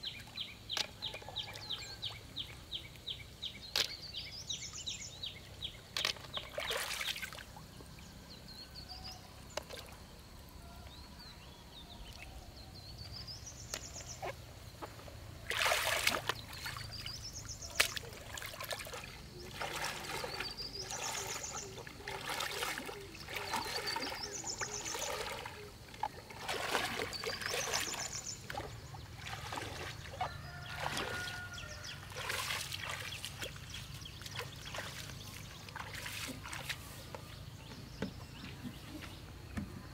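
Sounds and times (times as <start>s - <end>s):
water trickling: 0.0s - 11.3s, 13.2s - 37.2s
splashing steps in water: 5.9s - 7.6s, 14.8s - 37.2s.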